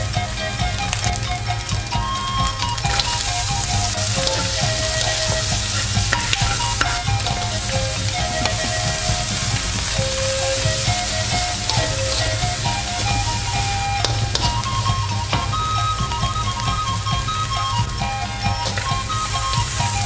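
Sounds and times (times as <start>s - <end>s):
background music with simple melody: 0.0s - 20.0s
food sizzling in hot oil: 0.0s - 20.0s
spatula clicking against pan: 2.4s - 15.5s.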